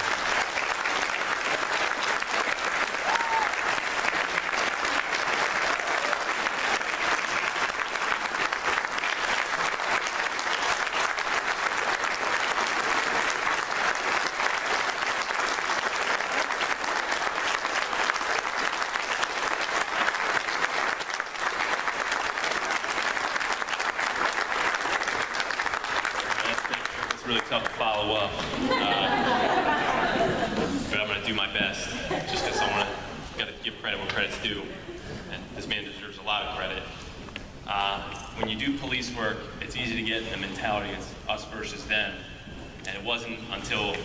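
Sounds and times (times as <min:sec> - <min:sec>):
large audience applauding: 0:00.0 - 0:30.7.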